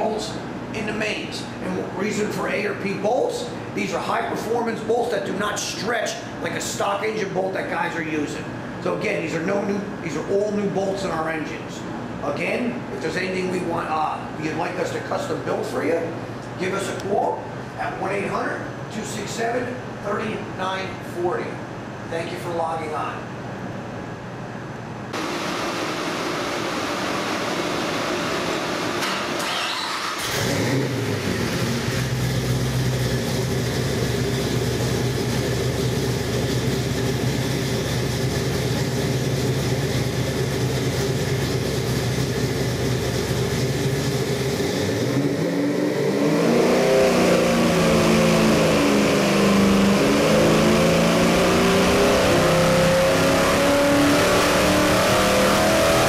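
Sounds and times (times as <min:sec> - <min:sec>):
engine idling and revving: 0:25.2 - 0:56.0.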